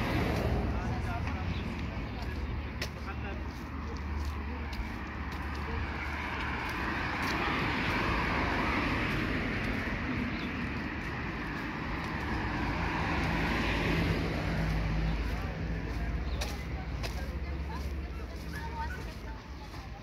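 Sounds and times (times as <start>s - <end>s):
vehicle passing: 0.0s - 20.0s.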